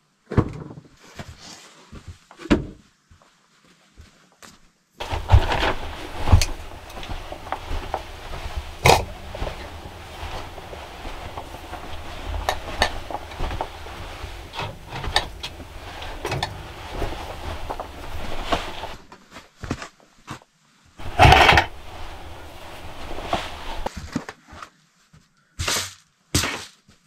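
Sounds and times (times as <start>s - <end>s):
plastic bucket clattering: 5.0s - 19.1s, 21.0s - 23.9s
footsteps: 5.0s - 19.8s, 21.0s - 24.0s.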